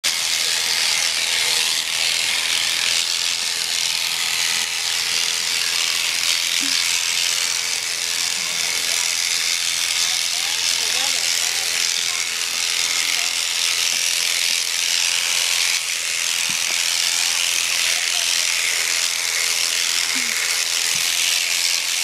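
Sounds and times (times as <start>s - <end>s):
electric clippers cutting fleece: 0.0s - 22.0s.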